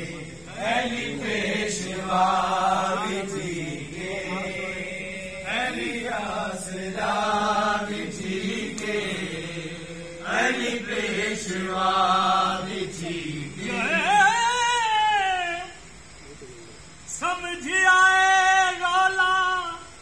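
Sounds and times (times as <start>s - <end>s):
low drone: 0.0s - 14.0s
man singing chant-like phrases: 0.0s - 15.9s, 17.1s - 20.0s.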